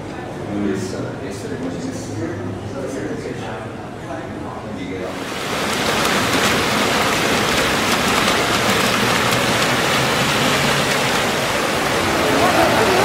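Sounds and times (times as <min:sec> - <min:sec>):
fountain water splashing: 0:05.1 - 0:13.0.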